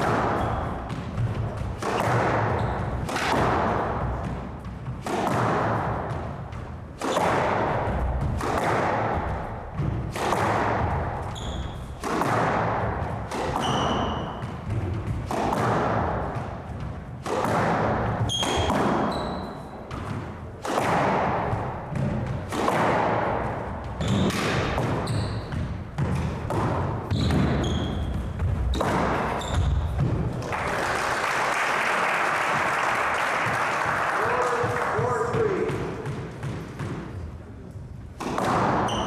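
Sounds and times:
sneakers squeaking on wooden floor: 0:00.0 - 0:05.0, 0:10.8 - 0:15.3, 0:18.0 - 0:20.5, 0:23.5 - 0:30.4, 0:38.4 - 0:39.0
squash ball cracking off rackets: 0:00.0 - 0:30.5, 0:38.1 - 0:39.0
applause: 0:30.4 - 0:35.6.

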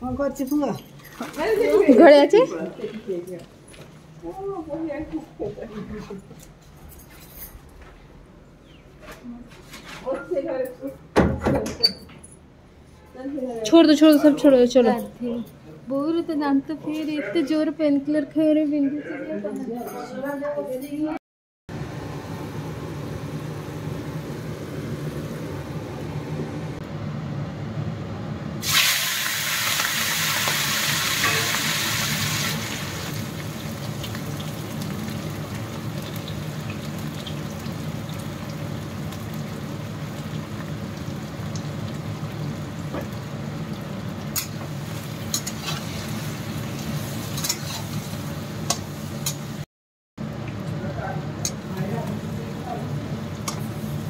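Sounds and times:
steady low hum: 0:21.7 - 0:28.6
prawns sizzling in hot oil: 0:28.6 - 0:49.6.

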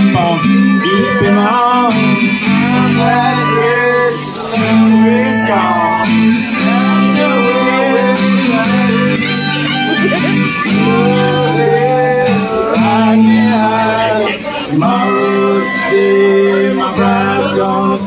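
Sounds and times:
acoustic guitar strumming: 0:00.0 - 0:18.0
person singing: 0:00.0 - 0:18.0
steel guitar sliding notes: 0:00.0 - 0:18.0.

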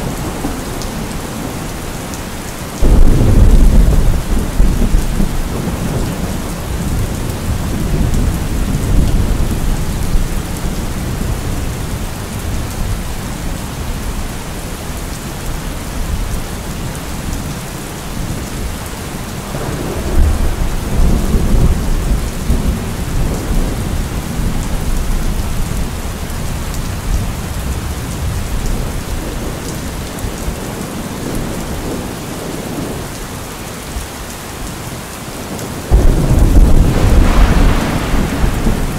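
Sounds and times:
steady rain: 0:00.0 - 0:38.9
rolling thunder: 0:02.8 - 0:13.0, 0:19.5 - 0:26.0, 0:35.6 - 0:38.9.

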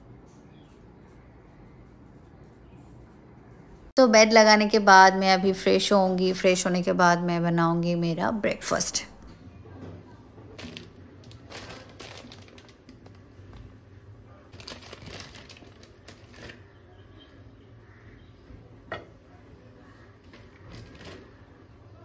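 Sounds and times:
objects rustling and clicking: 0:09.7 - 0:13.8, 0:14.5 - 0:16.8, 0:20.2 - 0:21.5.

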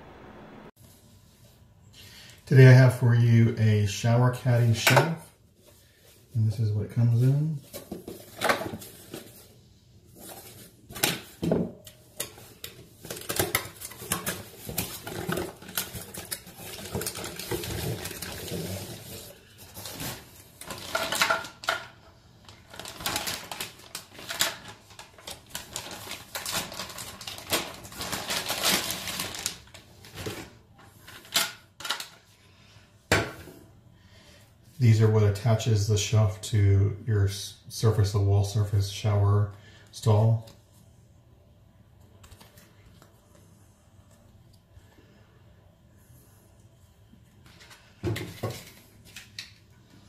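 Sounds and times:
plastic wrap rustling: 0:05.5 - 0:32.2.

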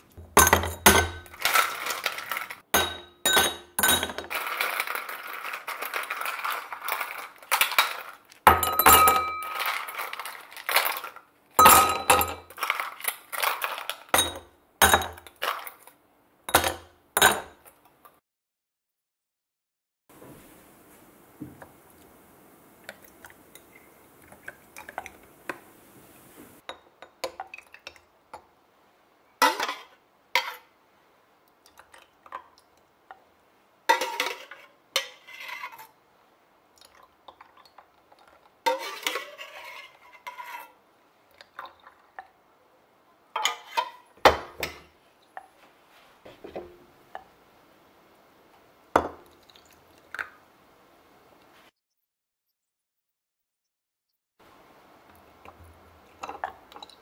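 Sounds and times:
ice clinking against glass: 0:00.4 - 0:15.7
lemon juice pouring: 0:49.2 - 0:50.3.

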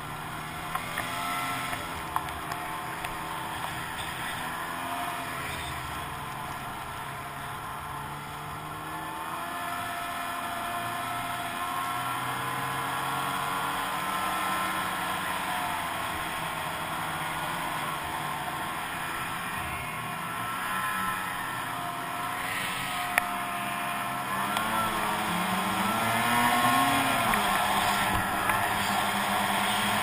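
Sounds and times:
snowmobile engine running: 0:00.0 - 0:30.0
steady rushing noise: 0:20.8 - 0:30.0.

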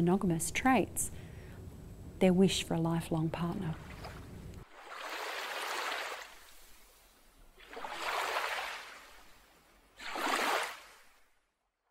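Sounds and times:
sea waves washing in: 0:03.8 - 0:11.3.

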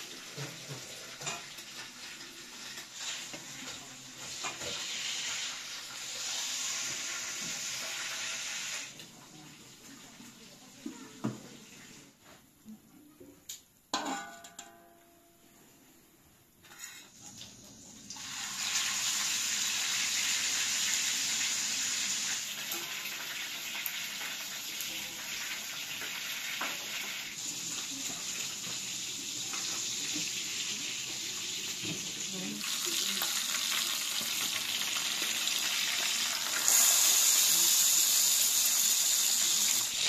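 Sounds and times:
fish sizzling in oil: 0:00.0 - 0:10.6, 0:16.8 - 0:40.0
metal lid clinking on pot: 0:13.9 - 0:15.0.

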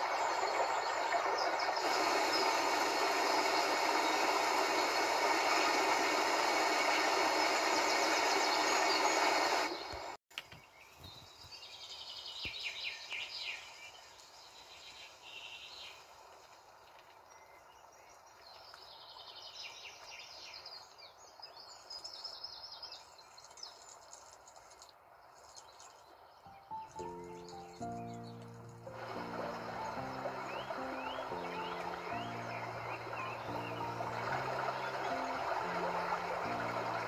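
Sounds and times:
waterfall rushing: 0:00.0 - 0:09.8, 0:28.8 - 0:37.0
high bird chirping: 0:25.5 - 0:37.0.

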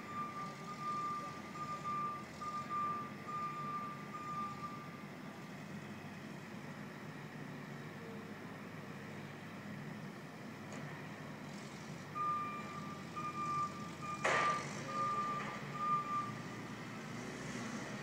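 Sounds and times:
reversing alarm beeping: 0:00.0 - 0:05.1, 0:12.2 - 0:16.6.

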